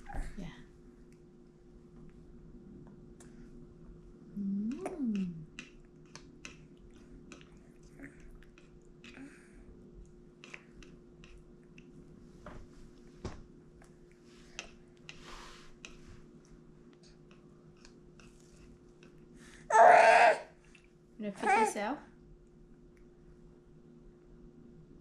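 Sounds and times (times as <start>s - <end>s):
mouth clicks and wet smacks: 4.7s - 9.2s.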